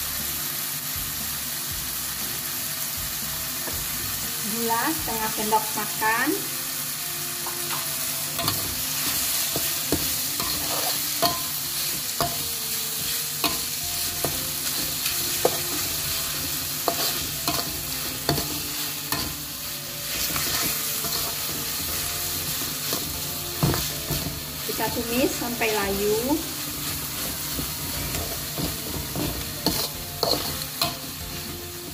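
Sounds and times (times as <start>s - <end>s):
vegetables sizzling in oil: 0.0s - 31.9s
metal spatula scraping a pan: 8.4s - 24.8s, 26.4s - 31.6s.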